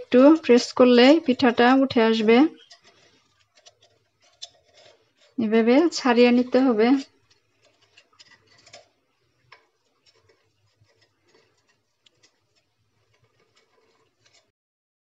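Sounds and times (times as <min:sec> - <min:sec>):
knife blade scraping metal pan: 0:00.0 - 0:14.5.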